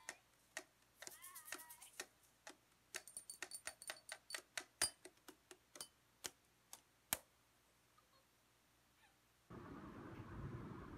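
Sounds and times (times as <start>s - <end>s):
sharp clicks and taps on objects: 0.0s - 7.3s.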